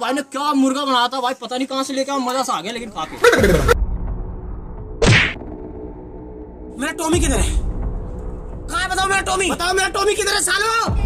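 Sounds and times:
whack hit with falling pitch: 0:05.0 - 0:05.6.

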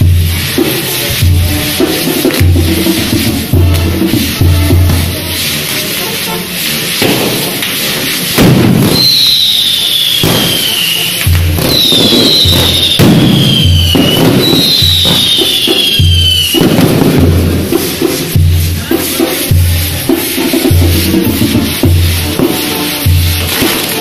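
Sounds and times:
low drum beat: 0:00.0 - 0:06.2, 0:06.8 - 0:09.4, 0:10.2 - 0:24.0
band music: 0:00.0 - 0:24.0
firework wheels hissing and crackling: 0:00.0 - 0:24.0
whistling fireworks: 0:00.0 - 0:24.0.

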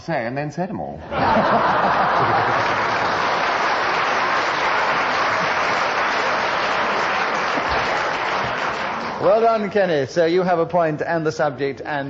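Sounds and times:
audience applauding: 0:01.4 - 0:09.7.

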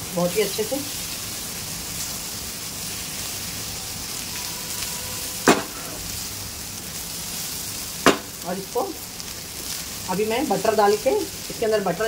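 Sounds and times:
frying sizzle: 0:00.0 - 0:12.0
knock against pan: 0:05.5 - 0:05.8, 0:08.1 - 0:08.3.

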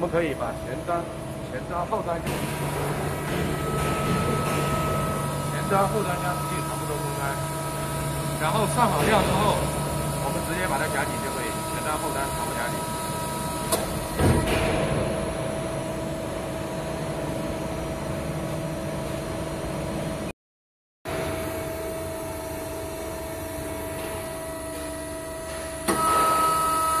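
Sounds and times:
hydraulic machine humming: 0:00.0 - 0:20.1, 0:21.1 - 0:27.0
high machine tone: 0:02.2 - 0:14.6.

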